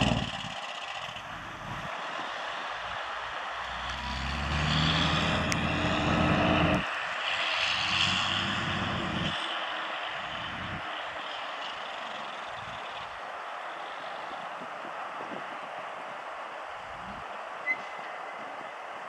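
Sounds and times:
truck diesel engine pulling away: 0.0s - 14.4s.

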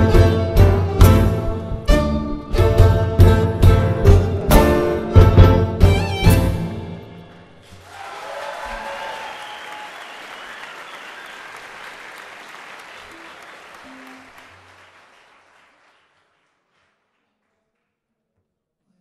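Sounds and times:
band playing: 0.0s - 7.6s, 13.0s - 14.6s
audience applauding: 7.6s - 17.8s.

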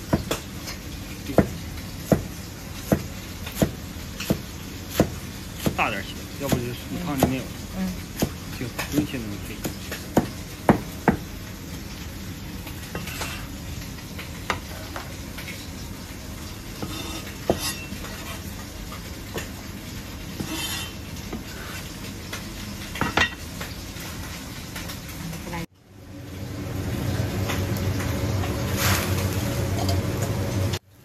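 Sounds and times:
cleaver knocking on cutting board: 10.2s - 11.2s.

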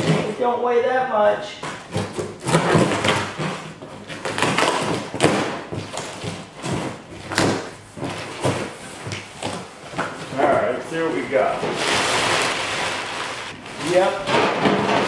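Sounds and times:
knife slitting packing tape: 1.6s - 9.6s
cardboard flaps rustling: 1.6s - 15.0s.

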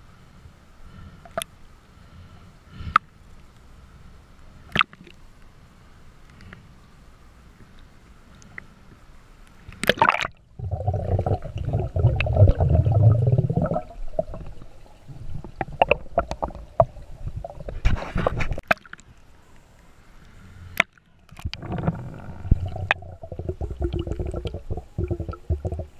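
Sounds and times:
underwater gurgling and churning: 9.8s - 19.0s, 21.3s - 25.9s
water splashing: 20.8s - 25.9s.

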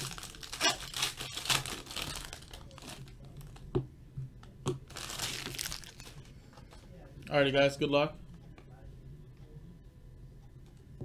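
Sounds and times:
foil wrapper crinkling: 0.0s - 3.6s, 4.9s - 6.2s.

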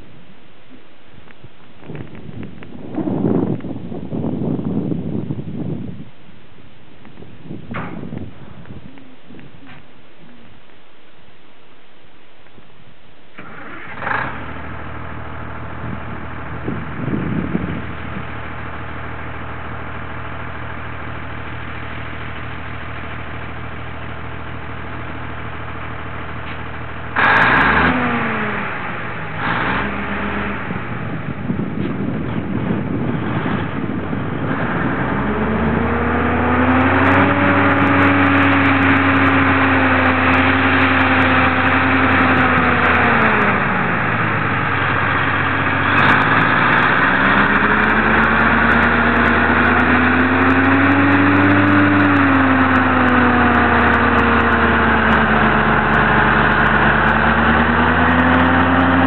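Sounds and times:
diesel engine revving: 13.3s - 59.0s.

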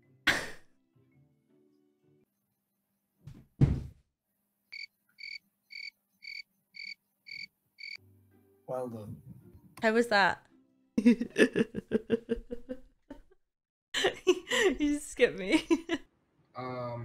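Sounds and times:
head thudding against wall: 3.2s - 4.0s
cricket chirping sound effect: 4.8s - 8.0s.

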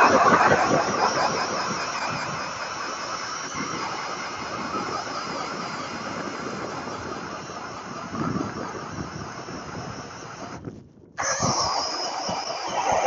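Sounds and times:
auger blades grinding ice: 11.2s - 13.0s
drill motor whining: 11.2s - 13.0s.

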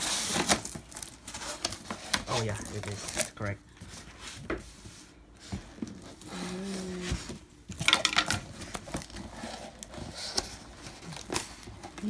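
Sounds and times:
packing tape tearing: 0.0s - 3.5s.

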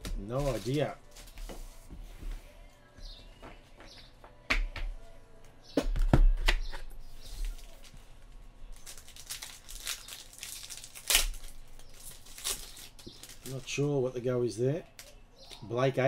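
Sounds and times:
cards being handled: 0.1s - 1.7s
wrapper crinkling and tearing: 8.7s - 13.9s.

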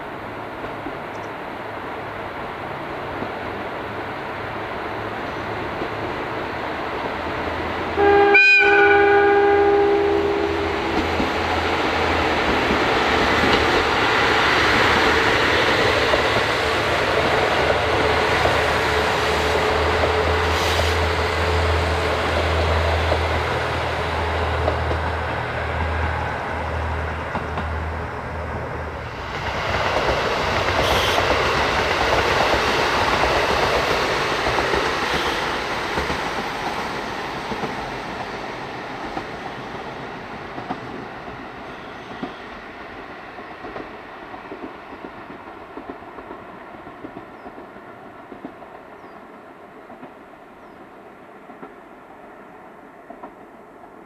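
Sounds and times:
train wheels clattering on rails: 10.7s - 50.8s, 51.4s - 51.9s, 53.0s - 54.0s.

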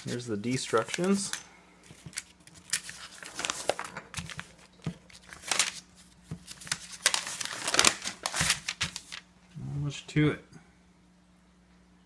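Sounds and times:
paper rustling and crinkling: 0.0s - 9.3s.

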